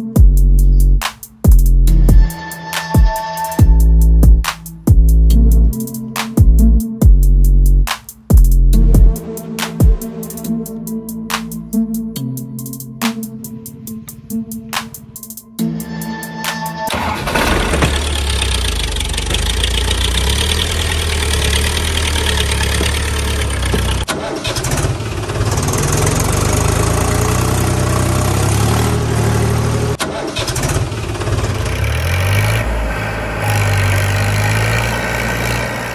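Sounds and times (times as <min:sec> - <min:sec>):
tractor engine running: 0:16.8 - 0:35.9.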